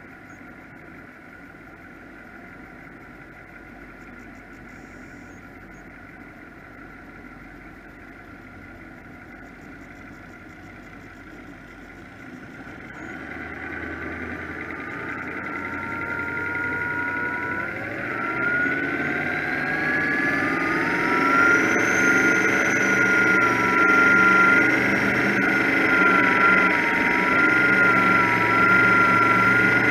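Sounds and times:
powerboat engines: 0.0s - 29.9s.

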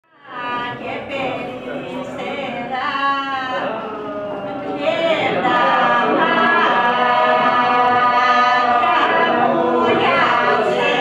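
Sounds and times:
mixed group singing unaccompanied: 0.1s - 11.0s
single voice singing: 0.1s - 11.0s.

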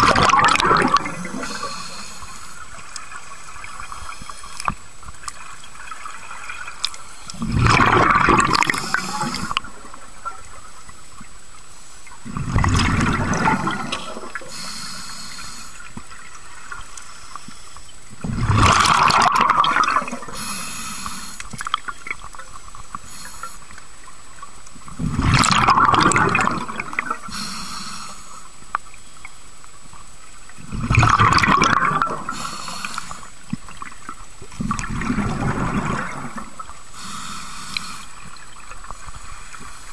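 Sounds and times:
exhaled bubbles rushing: 0.0s - 1.7s, 7.4s - 10.4s, 12.2s - 14.5s, 18.2s - 20.4s, 24.9s - 27.3s, 30.6s - 32.5s, 33.7s - 36.8s
regulator hiss: 1.1s - 4.7s, 8.7s - 9.6s, 14.4s - 15.9s, 20.3s - 21.6s, 22.9s - 24.1s, 27.2s - 29.2s, 32.3s - 33.4s, 36.9s - 39.9s.

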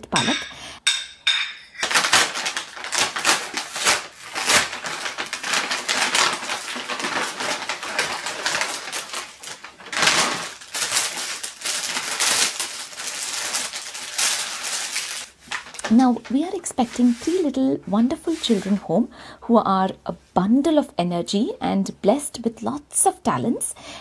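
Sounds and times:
paper bag rustling and crinkling: 1.8s - 18.8s.

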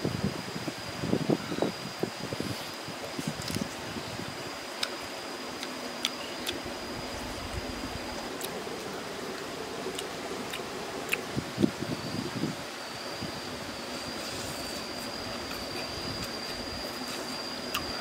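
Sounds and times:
background hiss: 0.0s - 18.0s
person chewing: 9.9s - 11.3s, 15.4s - 18.0s.

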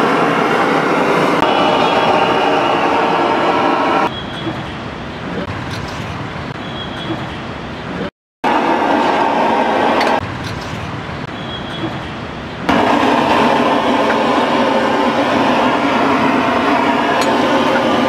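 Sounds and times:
road traffic: 0.0s - 18.0s
griddle sizzling: 12.7s - 18.0s.

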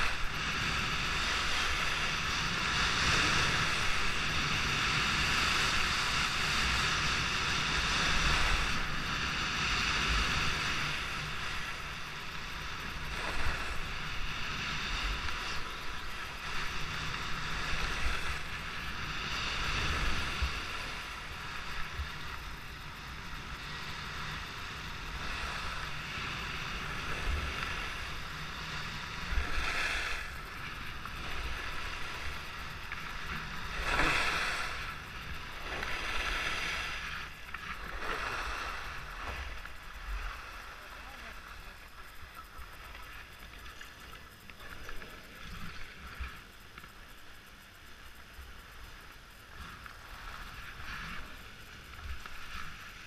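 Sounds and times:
wind on microphone: 0.0s - 40.6s.

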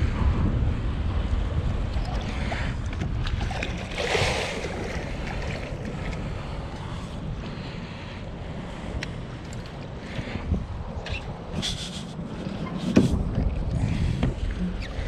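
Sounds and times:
wind rumbling on microphone: 0.0s - 15.0s
water lapping at a kayak: 1.1s - 15.0s
fish splashing at the surface: 3.2s - 6.0s.

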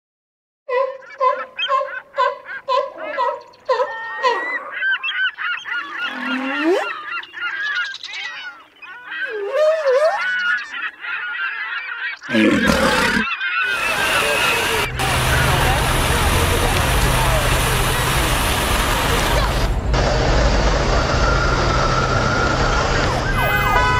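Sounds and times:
flock of birds honking: 1.3s - 9.4s, 10.2s - 20.1s, 20.7s - 23.9s
sudden loud burst of noise: 13.7s - 23.9s.

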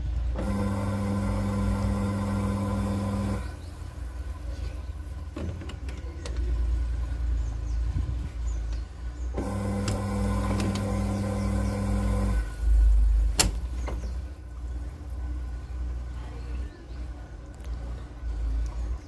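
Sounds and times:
washing machine tub rumbling: 0.0s - 16.2s
motor humming: 0.2s - 4.8s, 8.8s - 18.9s.

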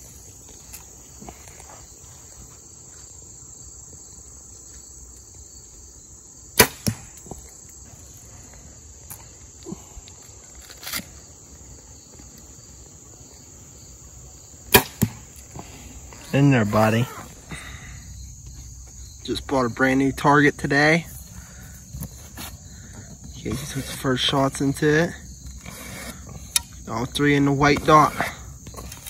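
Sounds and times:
crickets chirping: 0.0s - 29.0s
arrow hitting foam target: 6.6s - 7.2s, 14.7s - 15.2s.

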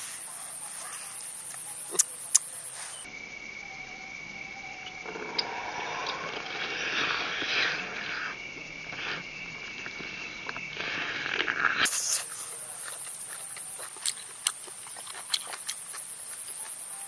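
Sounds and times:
wet chewing and lip-smacking: 1.5s - 2.5s, 11.2s - 16.9s.

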